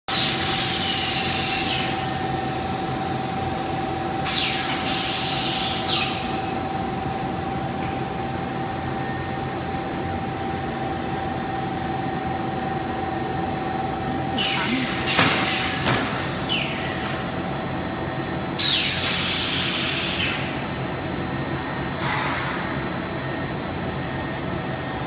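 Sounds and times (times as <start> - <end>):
machinery humming: 5.6 - 18.7.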